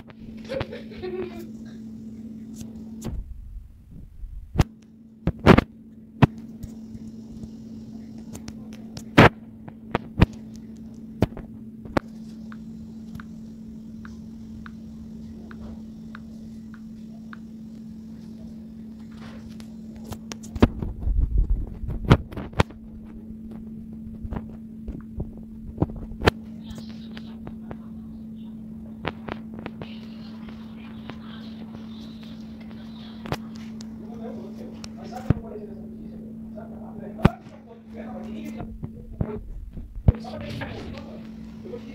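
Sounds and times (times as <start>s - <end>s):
steady low hum: 0.0s - 41.9s
short low rumble: 3.0s - 4.6s, 20.6s - 26.2s.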